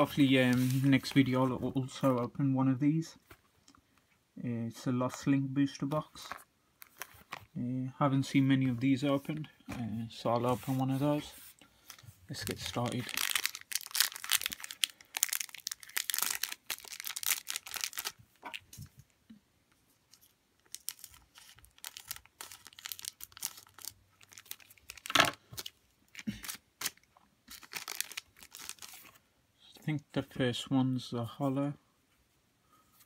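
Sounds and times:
foil wrapper crinkling: 0:11.8 - 0:18.2, 0:20.2 - 0:29.2.

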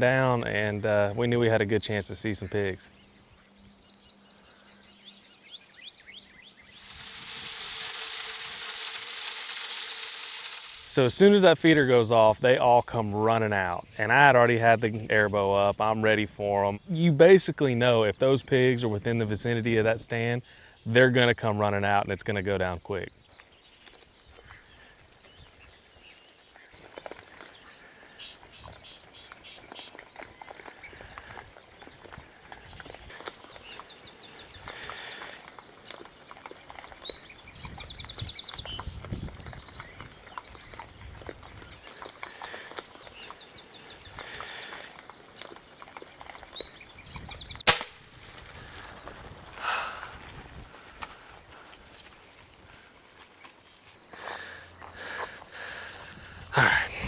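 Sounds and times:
hogs rustling and rooting: 0:00.0 - 0:04.1, 0:05.1 - 0:19.9, 0:21.7 - 0:56.6
bird chirps: 0:02.0 - 0:11.6, 0:22.7 - 0:47.7
feeder motor humming: 0:06.7 - 0:11.2
hiss of feed flung out: 0:06.7 - 0:11.2.

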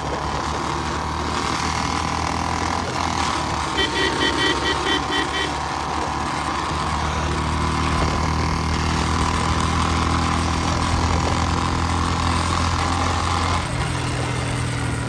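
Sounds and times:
motorcycle engine running: 0:00.0 - 0:15.0
road noise: 0:00.0 - 0:15.0.

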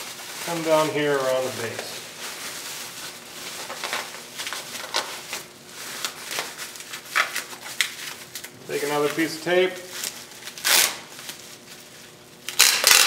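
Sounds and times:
bubble wrap crackling: 0:00.0 - 0:13.0.

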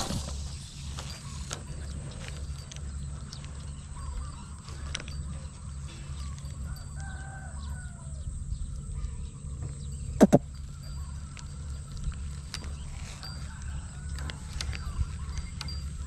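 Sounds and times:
rooster crowing: 0:06.2 - 0:08.4
sharp clicks: 0:10.2 - 0:10.4.

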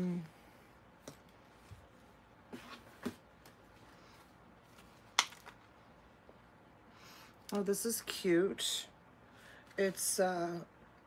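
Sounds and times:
small objects clicking and knocking: 0:05.1 - 0:05.7.

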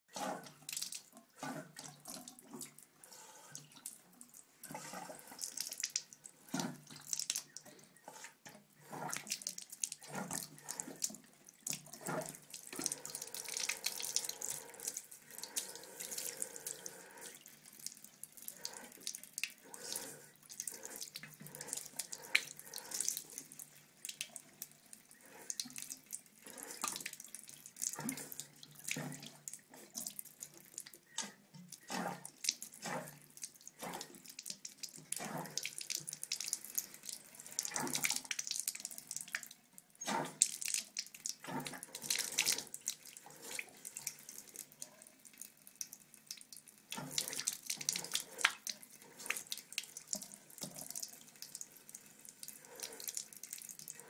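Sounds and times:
tap water splashing into sink: 0:05.4 - 0:07.7.

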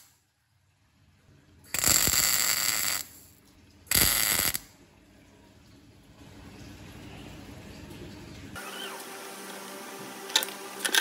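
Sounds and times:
welder arc crackling: 0:01.7 - 0:03.3, 0:03.9 - 0:04.7.

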